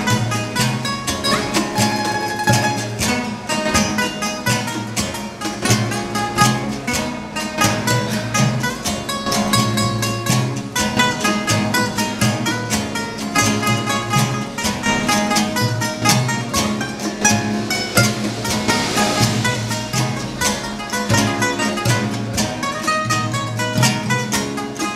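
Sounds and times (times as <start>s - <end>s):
acoustic guitars strumming: 0.0s - 24.9s.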